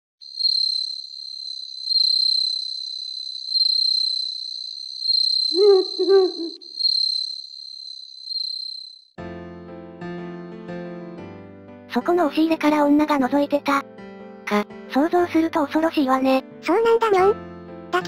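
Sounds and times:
crickets chirping: 0.2s - 9.2s
owl hooting: 5.5s - 7.0s.

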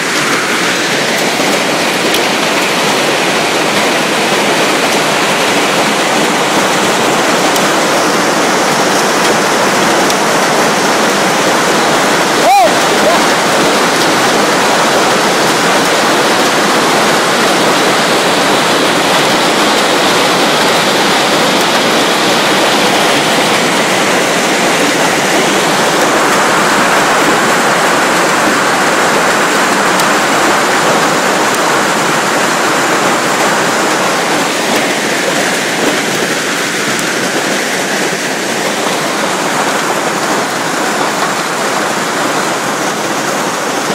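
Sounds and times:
hail and heavy rain pounding: 0.0s - 43.9s.

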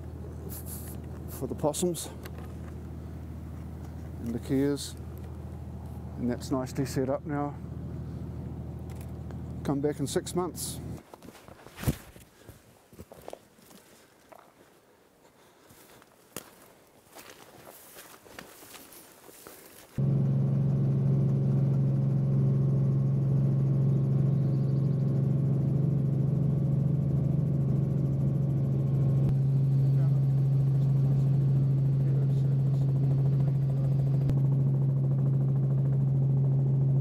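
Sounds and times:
helicopter engine and rotor drone: 0.0s - 11.0s, 20.0s - 37.0s.

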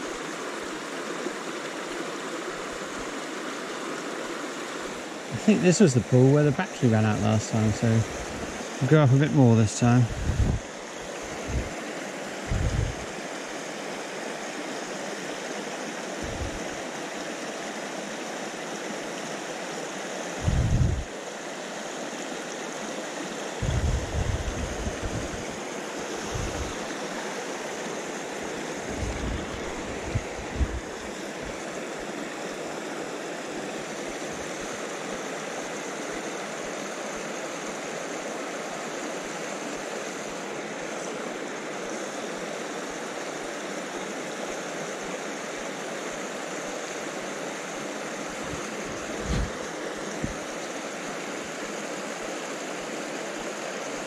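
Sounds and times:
stream rushing over rocks: 0.0s - 54.0s
low bumps on microphone: 48.5s - 49.6s.

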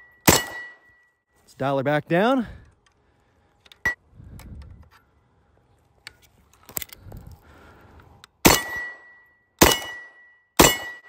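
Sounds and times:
ringing after gunshot: 0.0s - 0.9s, 8.4s - 11.0s
loud rifle shot: 0.2s - 0.8s, 8.4s - 9.0s, 9.6s - 11.0s.

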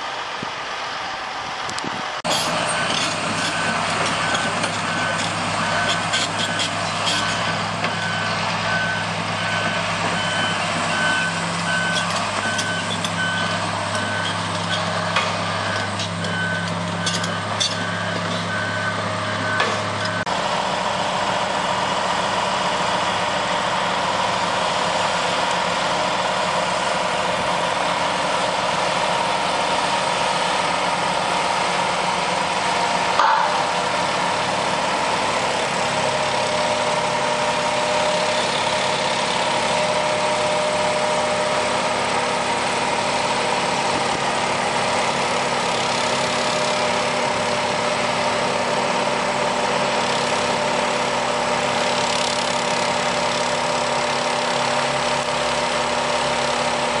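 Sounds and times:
heavy machinery engines running: 0.0s - 57.0s
backup alarm beeping: 2.7s - 20.3s
metal knocks: 33.2s - 33.9s.

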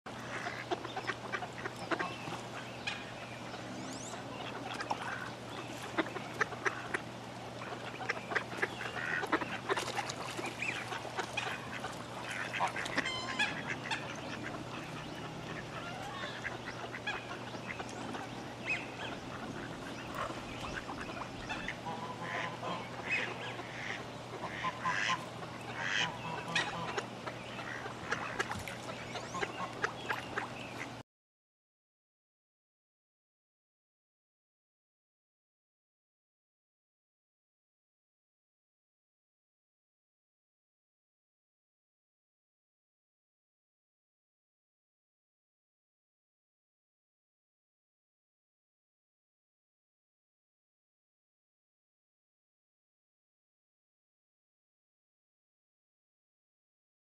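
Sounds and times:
ducks quacking: 0.1s - 31.0s
steady low hum: 0.1s - 31.0s
geese honking: 7.6s - 30.5s.

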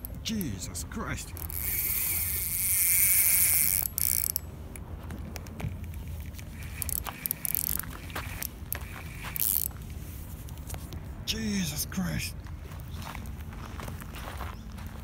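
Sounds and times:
fishing reel drag screaming: 1.4s - 4.4s, 6.6s - 9.7s.

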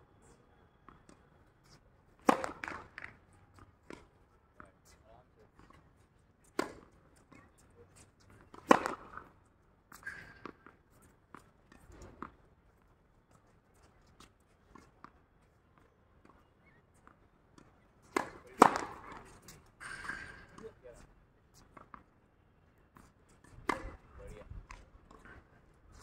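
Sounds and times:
tennis balls struck with rackets: 2.2s - 3.2s, 6.5s - 7.4s, 8.4s - 9.3s, 17.6s - 20.8s, 23.5s - 24.1s.

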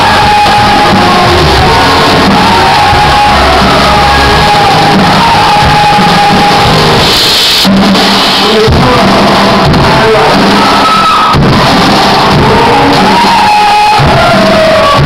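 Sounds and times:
person singing: 0.0s - 7.4s
rock band playing live: 0.0s - 15.0s.

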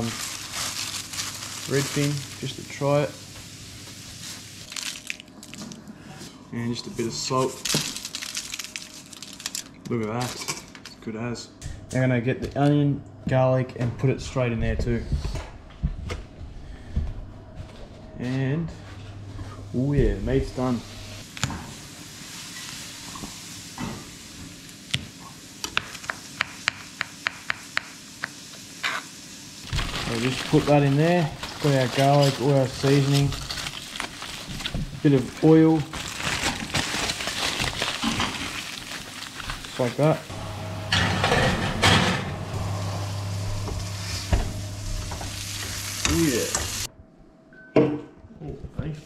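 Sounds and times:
fish sizzling in oil: 0.0s - 5.2s, 21.1s - 34.5s, 42.8s - 46.9s
steady low hum: 11.2s - 22.0s, 40.2s - 47.5s.

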